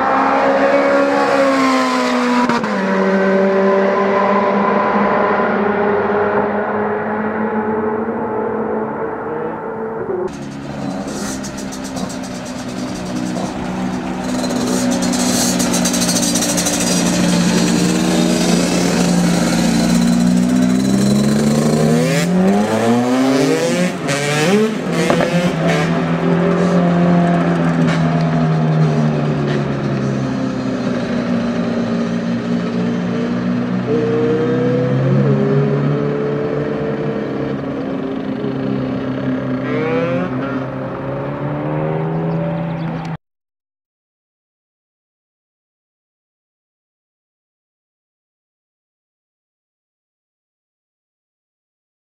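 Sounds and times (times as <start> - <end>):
car engine accelerating: 0.0 - 43.2
dirt bike engines revving: 0.0 - 43.2
sharp engine pops: 25.0 - 25.8.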